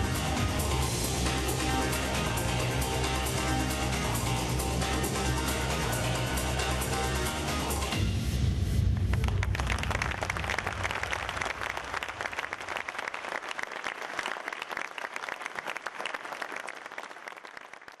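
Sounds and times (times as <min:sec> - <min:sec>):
bass of dance music: 0:00.0 - 0:11.2
audience applauding: 0:09.0 - 0:18.0.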